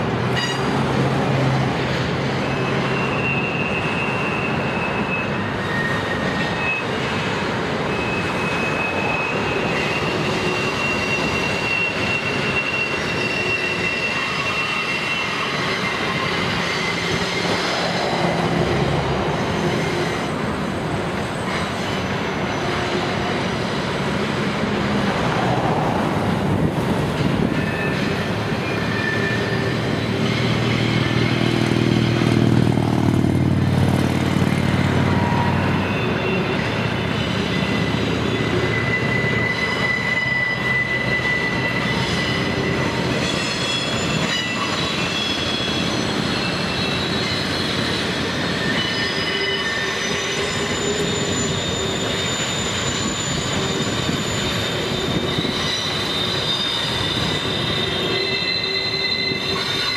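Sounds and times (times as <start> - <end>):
train rumble: 0.0 - 59.9
train wheels squealing: 0.3 - 33.1, 34.3 - 59.9.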